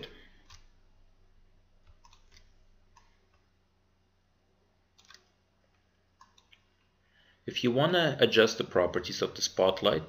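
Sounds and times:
computer mouse clicks: 0:00.4 - 0:00.8, 0:01.8 - 0:03.5, 0:04.9 - 0:06.9.

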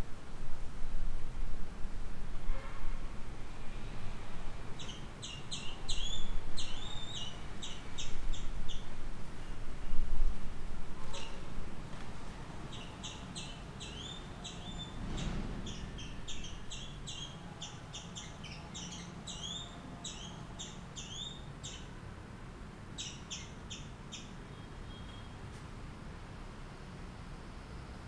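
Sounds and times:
bird chirping rapidly: 0:04.8 - 0:08.9, 0:12.7 - 0:21.9, 0:23.0 - 0:24.4.

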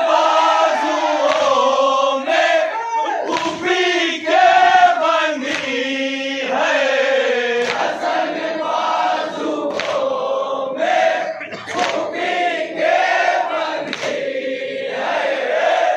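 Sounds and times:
men chanting in unison: 0:00.0 - 0:15.9
sharp slaps: 0:01.2 - 0:01.7, 0:03.3 - 0:03.8, 0:05.4 - 0:05.8, 0:07.6 - 0:08.2, 0:09.6 - 0:10.1, 0:11.5 - 0:12.2, 0:13.8 - 0:14.3.

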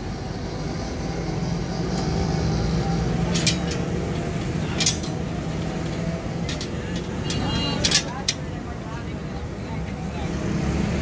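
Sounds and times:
steel leaf springs clinking: 0:01.4 - 0:08.8.

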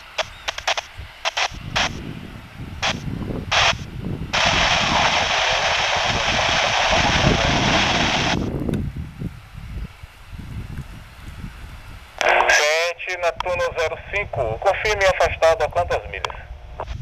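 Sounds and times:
radio static crackles: 0:00.0 - 0:02.2, 0:02.8 - 0:08.6, 0:12.2 - 0:17.0
radio hiss: 0:00.0 - 0:08.6, 0:12.0 - 0:17.0
jet engines rumbling: 0:00.0 - 0:17.0.

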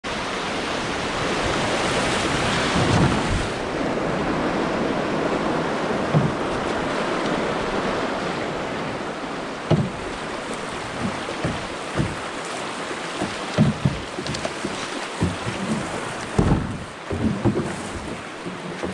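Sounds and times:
whitewater rushing: 0:00.1 - 0:18.9
short low thumps: 0:09.7 - 0:10.2, 0:10.9 - 0:12.3, 0:13.2 - 0:18.9.

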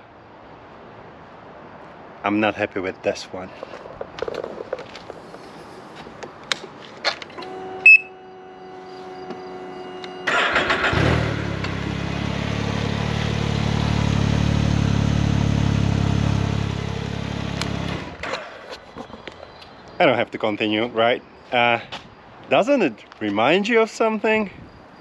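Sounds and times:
short loud beep: 0:07.4 - 0:10.3
engine cranking and idling: 0:10.2 - 0:14.3.

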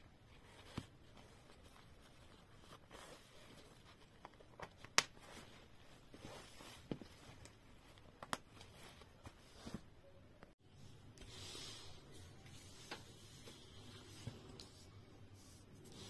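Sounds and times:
fabric rustling: 0:00.0 - 0:10.2.

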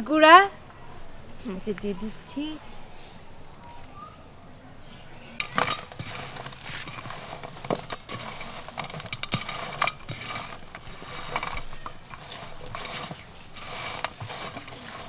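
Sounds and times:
fries rustling in metal tray: 0:05.4 - 0:15.0.

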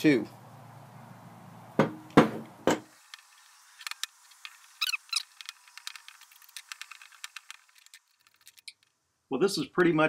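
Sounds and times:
metal tools knocking on steel: 0:01.8 - 0:02.9.

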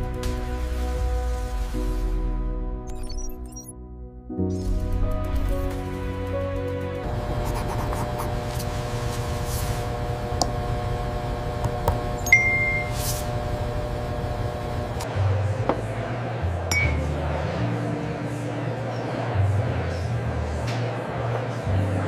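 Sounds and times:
steady held drone: 0:07.0 - 0:15.5
short electronic beep: 0:12.2 - 0:13.0.

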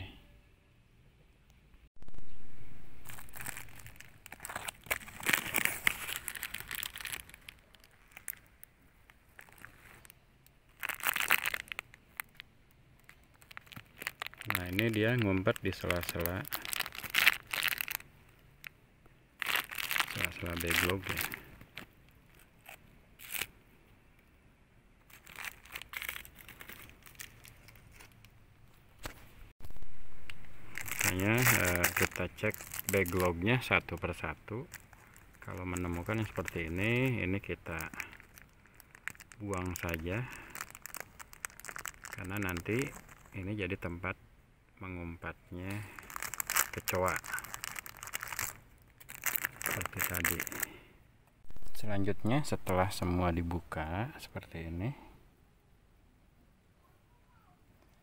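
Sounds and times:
plastic bags crinkling: 0:03.0 - 0:18.7, 0:19.4 - 0:23.5, 0:25.1 - 0:28.3, 0:30.4 - 0:43.5, 0:45.6 - 0:50.7.

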